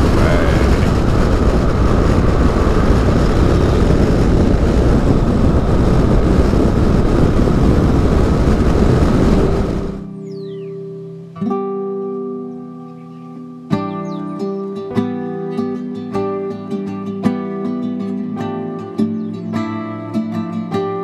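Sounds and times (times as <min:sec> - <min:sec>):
wind and road noise: 0:00.0 - 0:10.8
acoustic guitar: 0:09.6 - 0:21.0.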